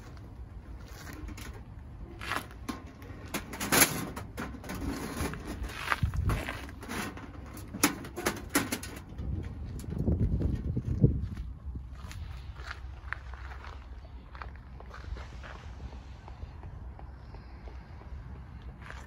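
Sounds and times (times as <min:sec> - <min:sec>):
rustles and clicks: 0:00.0 - 0:11.5
wind buffeting microphone: 0:04.7 - 0:19.0.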